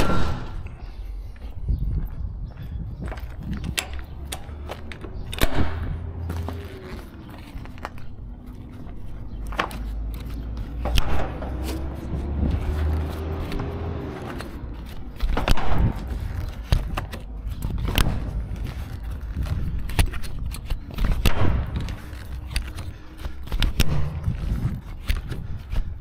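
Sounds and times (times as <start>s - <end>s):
vehicle engine rumble: 0.0s - 26.0s
metal buckles clacking: 3.0s - 25.9s
strap and tarpaulin scraping: 6.2s - 25.9s.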